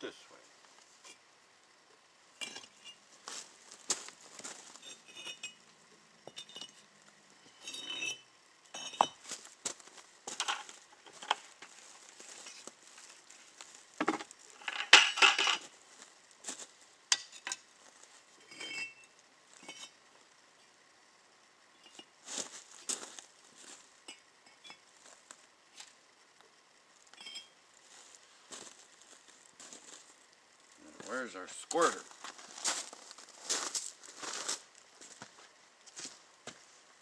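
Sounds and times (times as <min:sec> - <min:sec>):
bricks clinking and knocking: 0:02.4 - 0:03.0, 0:03.9 - 0:05.6, 0:06.2 - 0:09.4, 0:14.0 - 0:15.7, 0:19.6 - 0:20.0.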